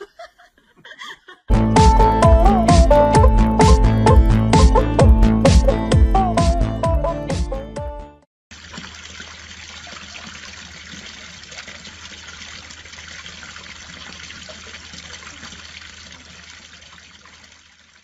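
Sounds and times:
fountain water splashing: 8.5 - 18.0.

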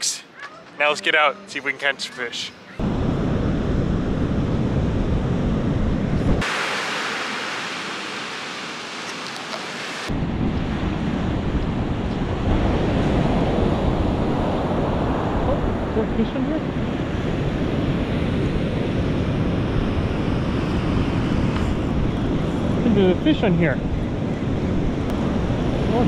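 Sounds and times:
wind buffeting microphone: 2.8 - 6.5, 10.1 - 26.0
waves breaking on sand: 6.4 - 15.4.

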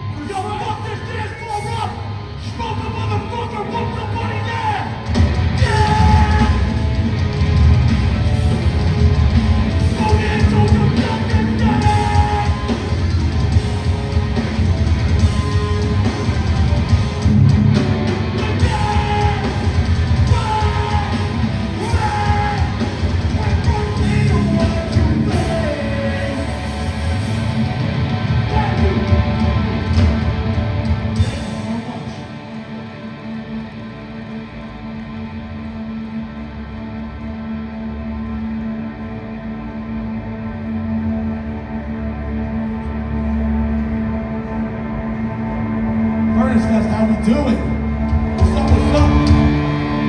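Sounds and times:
live hardcore band playing: 0.0 - 50.0
sung and shouted vocals: 18.4 - 27.0.

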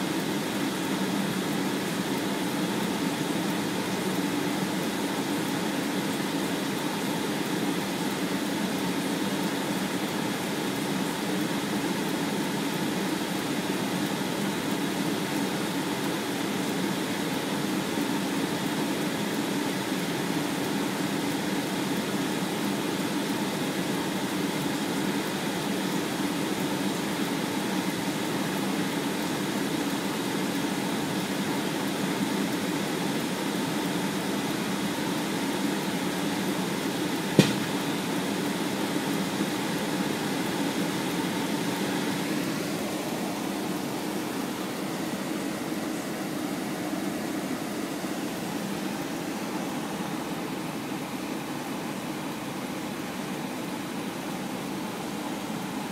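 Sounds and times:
sharp click: 37.4 - 38.0.

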